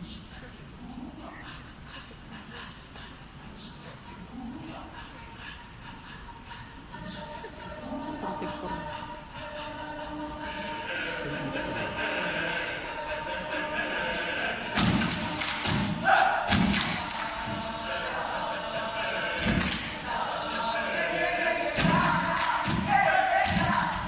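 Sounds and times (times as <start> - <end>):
choir singing in harmony: 1.6 - 24.0
body percussion thumps and slaps: 14.8 - 17.2, 21.8 - 24.0.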